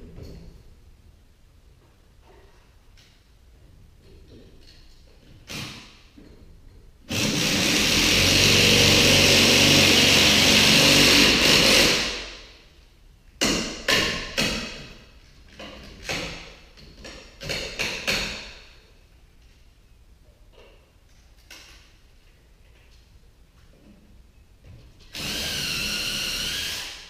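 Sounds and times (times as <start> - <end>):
power tool running: 7.1 - 12.2, 25.2 - 27.0.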